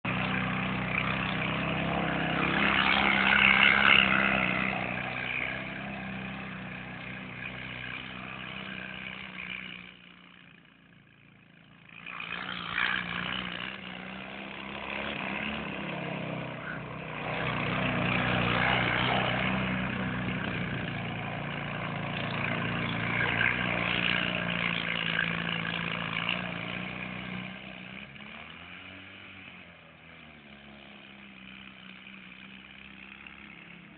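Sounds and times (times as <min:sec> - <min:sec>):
buggy engine running hard: 0:00.0 - 0:33.9.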